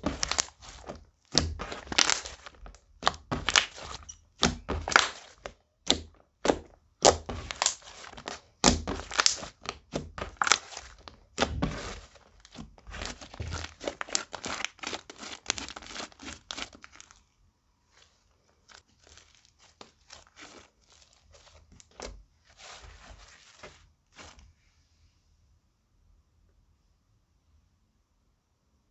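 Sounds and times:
slime squishing with wet pops: 0.0 - 17.2, 18.6 - 23.6.

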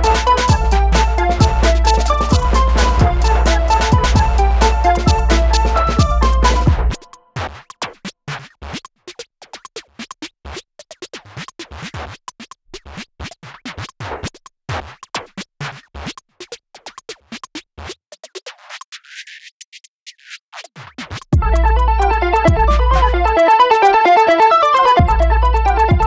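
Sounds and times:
stuttering electronic music: 0.0 - 7.2, 21.4 - 26.0.

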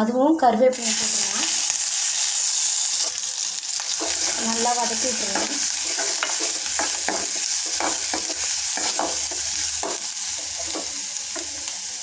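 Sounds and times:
vegetables sizzling in hot oil: 0.7 - 12.0
steel spoon scraping pan: 3.9 - 11.7.

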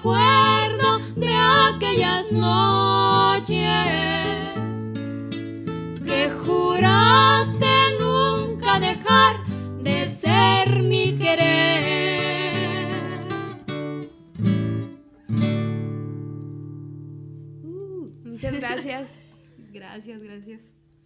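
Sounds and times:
women singing with vibrato: 0.0 - 5.0, 6.0 - 13.6
acoustic guitars strumming: 0.0 - 17.6.

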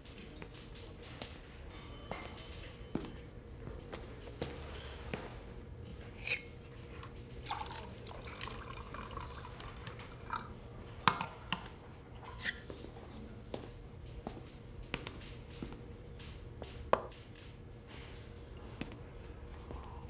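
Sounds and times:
glass clinking: 1.7 - 3.2, 5.8 - 9.6, 10.3 - 12.6
water pouring into a glass: 6.9 - 10.5.

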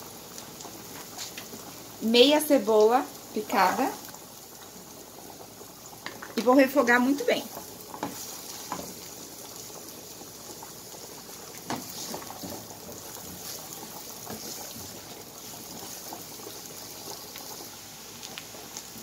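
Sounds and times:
onion frying in oil: 0.0 - 19.0
water boiling in a pot: 0.0 - 19.0
spatula scraping a pan: 7.6 - 9.1, 11.5 - 16.6.

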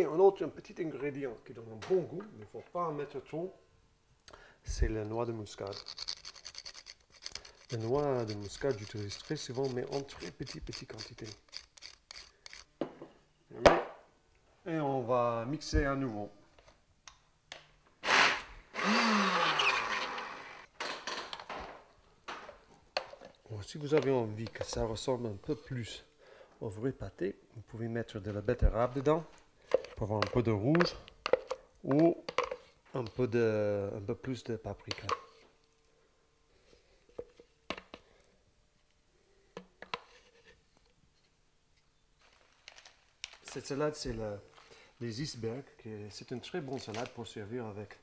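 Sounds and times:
blender running: 18.0 - 20.7.

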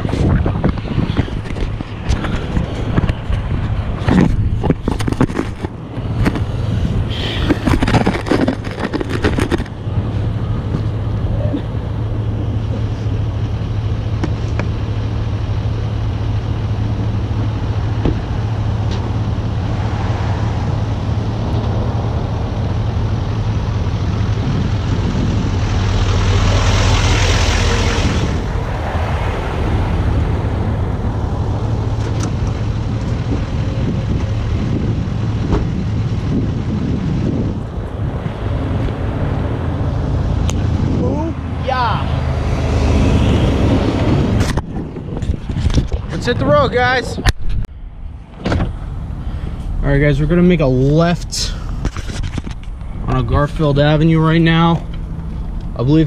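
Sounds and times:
diesel truck engine: 0.0 - 56.0.

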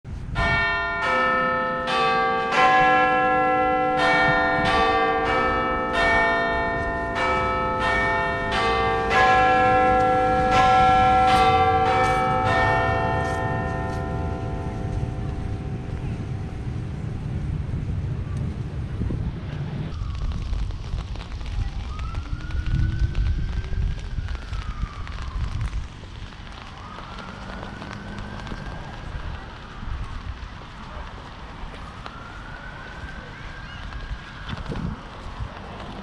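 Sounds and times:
bells ringing in slow melody: 0.4 - 15.9.

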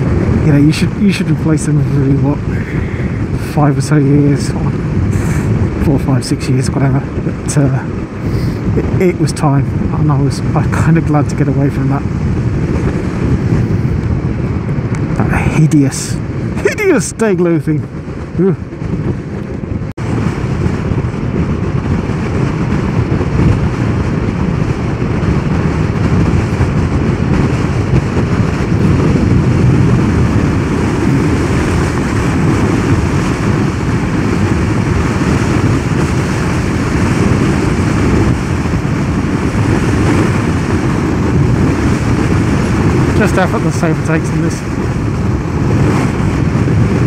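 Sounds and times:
motorcycle tyre noise: 0.0 - 47.0
wind rushing over microphone: 0.0 - 47.0.

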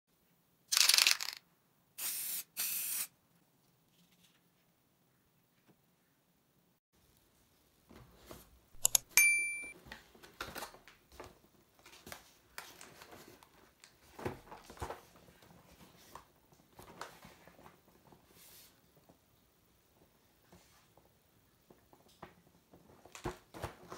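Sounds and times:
sharp clicks: 8.8 - 9.7
bright ringing tone: 8.8 - 9.8.

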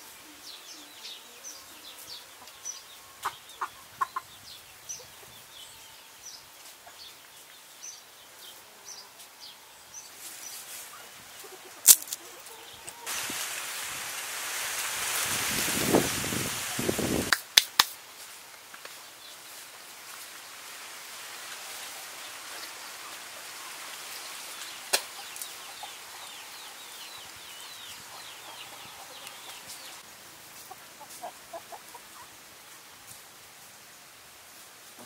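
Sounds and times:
chickens clucking: 2.4 - 4.4, 27.8 - 30.0, 30.6 - 32.4.

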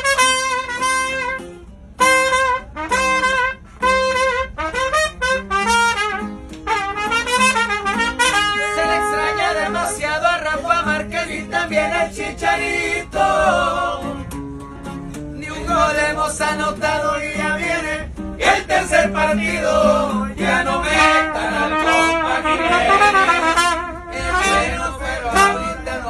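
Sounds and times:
strummed acoustic guitar: 0.0 - 26.0
men singing together: 8.6 - 14.3, 15.4 - 23.4, 24.2 - 26.0.

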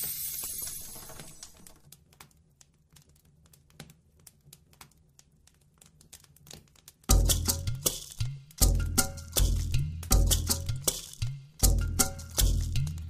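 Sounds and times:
faint crackling and clicking: 0.9 - 7.2
percussive music: 7.1 - 13.0.

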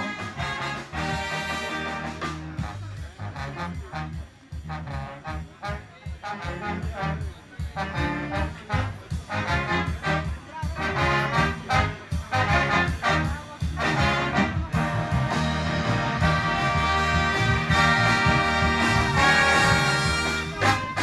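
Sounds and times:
big band brass playing swing: 0.0 - 21.0.

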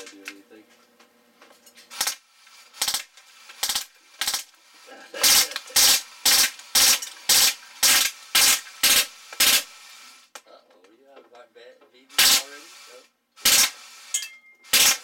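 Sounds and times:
bb gun firing bursts: 1.9 - 4.5, 5.2 - 9.8, 12.2 - 12.6, 13.4 - 15.0.

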